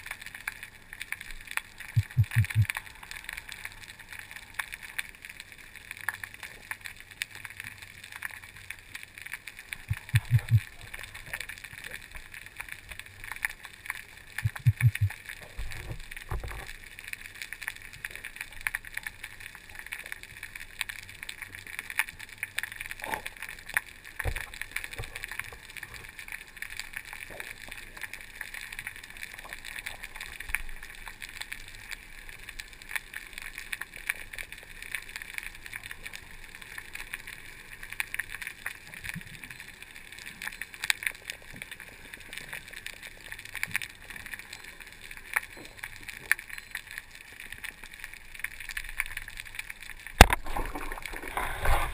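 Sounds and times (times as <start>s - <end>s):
dense crackle of clicks: 0.0s - 51.9s
dull low thumps: 2.0s - 2.7s, 14.4s - 15.1s.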